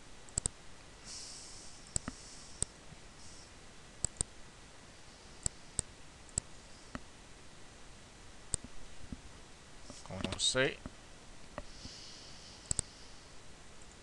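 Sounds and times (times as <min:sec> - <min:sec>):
computer mouse button clicking: 0:00.3 - 0:00.5, 0:12.7 - 0:12.9.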